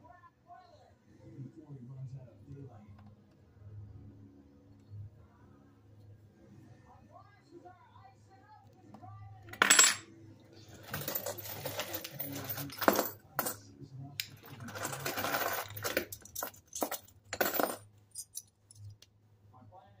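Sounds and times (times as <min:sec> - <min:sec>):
coins clinking: 0:09.5 - 0:10.0, 0:10.7 - 0:13.6, 0:14.2 - 0:19.0
coins rattling: 0:09.6 - 0:10.0, 0:10.7 - 0:13.6, 0:14.2 - 0:19.0.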